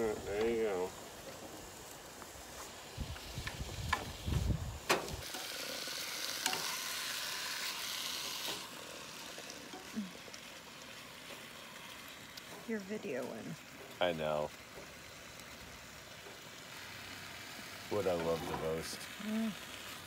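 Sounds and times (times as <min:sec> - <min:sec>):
chicken sizzling in a frying pan: 0:00.0 - 0:20.0.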